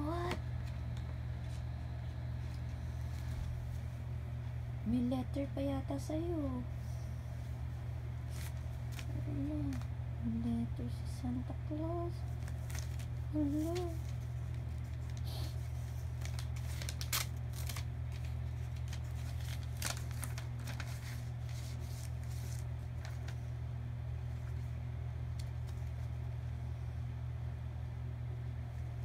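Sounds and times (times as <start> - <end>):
steady low hum: 0.0 - 29.0
paper rustling and crinkling: 8.2 - 9.9, 12.3 - 23.5, 24.2 - 26.4.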